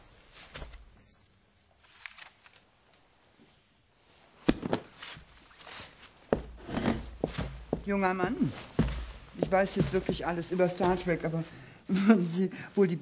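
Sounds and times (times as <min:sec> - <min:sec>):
books rustling and clicking: 0:00.1 - 0:01.1, 0:01.8 - 0:02.7, 0:04.4 - 0:11.5
book thumping down: 0:04.4 - 0:05.0.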